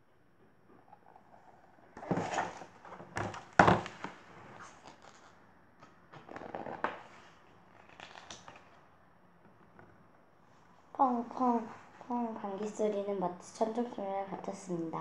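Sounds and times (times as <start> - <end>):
book pages rustling: 1.0 - 8.8.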